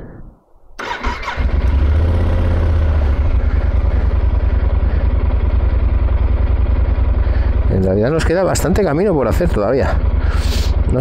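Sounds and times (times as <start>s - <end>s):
starter whirr: 0.8s - 5.5s
motorcycle engine running: 0.8s - 11.0s.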